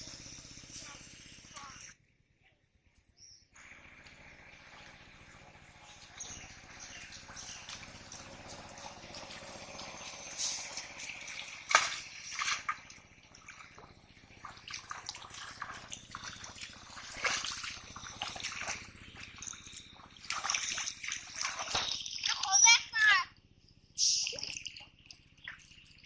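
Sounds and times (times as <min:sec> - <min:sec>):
loud sharp splash: 0:10.0 - 0:12.8, 0:14.4 - 0:18.8
footsteps splashing in water: 0:10.2 - 0:22.4
hands sloshing in water: 0:14.4 - 0:22.5.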